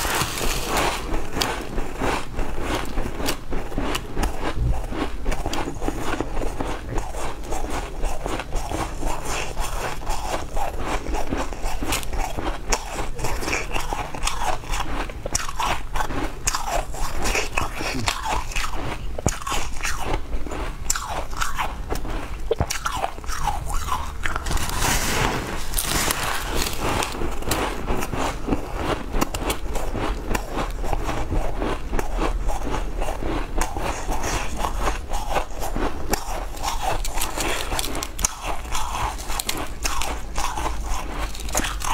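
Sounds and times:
ice crunching: 0.0 - 1.8, 22.6 - 29.0, 36.1 - 41.9.

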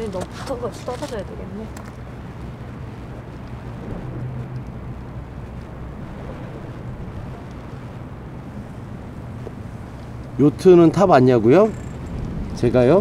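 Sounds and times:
low hum: 0.0 - 13.0
wind buffeting microphone: 0.0 - 13.0.

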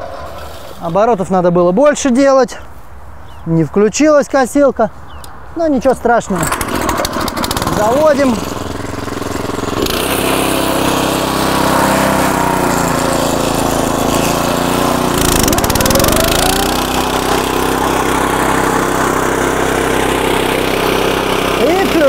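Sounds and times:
petrol engine running: 6.4 - 22.0.

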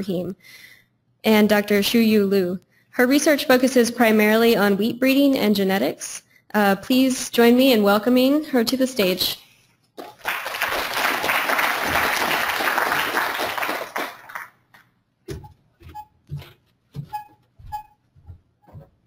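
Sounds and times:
audience applauding: 10.0 - 14.8
footsteps on stage floor: 15.2 - 19.0.

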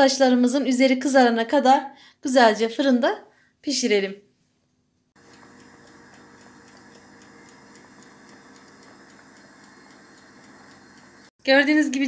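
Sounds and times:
faint regular ticking: 5.2 - 11.4
electric oven humming: 5.2 - 11.5.

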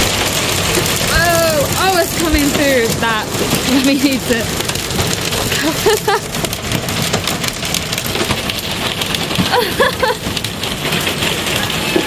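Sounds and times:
hail and rain clattering on boat: 0.0 - 12.0.

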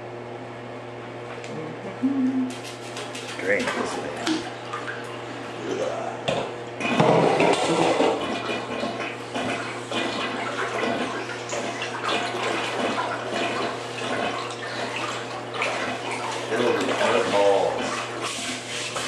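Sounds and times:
water sloshing in bathtub: 2.3 - 19.0
water splashing: 6.9 - 19.0.

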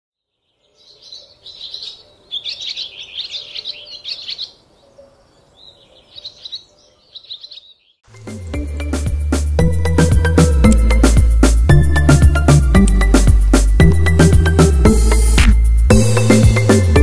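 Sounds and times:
small birds chirping: 0.2 - 8.1
music with a beat: 8.1 - 17.0.

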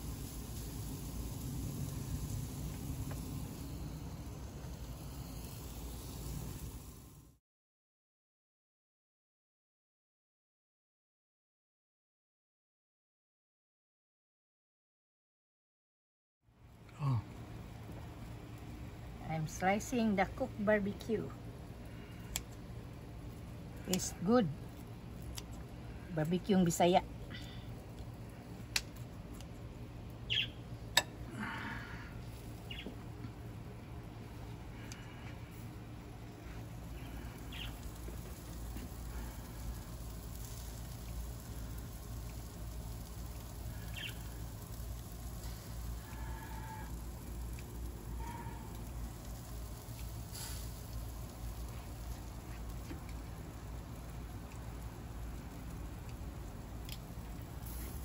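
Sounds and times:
low rumble: 0.0 - 7.4
meat sizzling on a grill: 0.0 - 7.4, 17.5 - 58.0
birds chirping: 30.2 - 30.7, 32.6 - 33.0, 37.0 - 37.9, 43.7 - 44.4.

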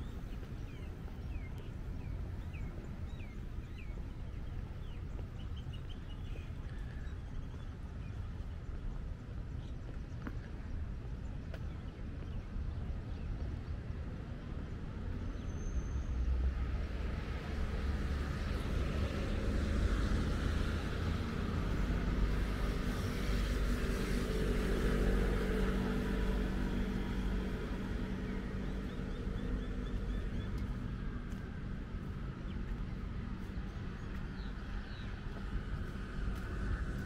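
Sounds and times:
road noise: 0.0 - 37.0
vehicle engine hum: 14.1 - 37.0.

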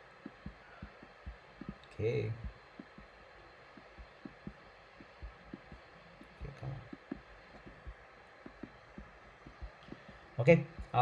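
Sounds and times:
quiet steady hum: 0.0 - 11.0.

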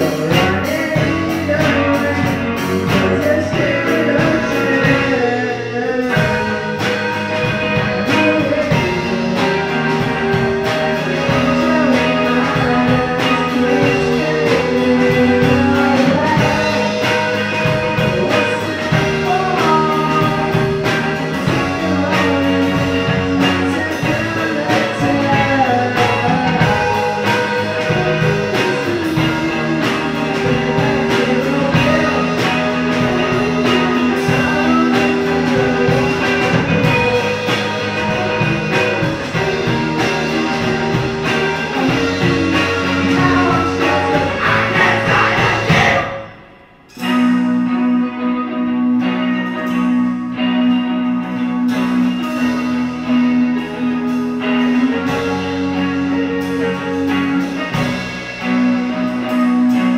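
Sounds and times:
steady drum beat: 0.0 - 47.5
person singing: 0.0 - 49.8
guitar: 0.0 - 59.9.

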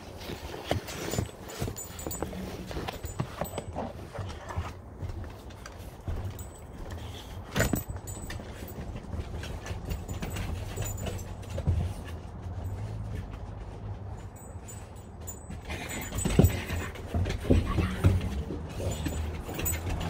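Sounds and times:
footsteps on wooden deck: 0.0 - 20.0.

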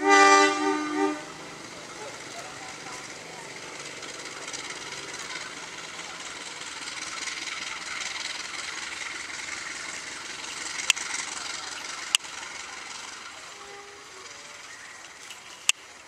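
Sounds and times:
diesel locomotive engine running: 0.0 - 16.0
sharp clicks: 10.4 - 12.3, 15.0 - 15.9.

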